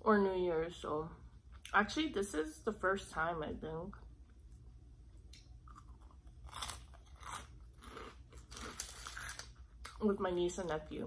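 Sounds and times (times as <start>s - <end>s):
chewing crunchy snacks: 5.4s - 10.0s.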